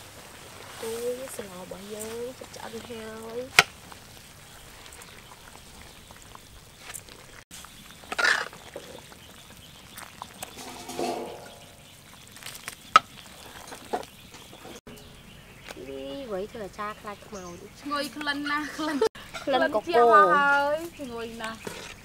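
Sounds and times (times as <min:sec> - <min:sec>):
metal ladle stirring in wok: 0:10.3 - 0:11.8.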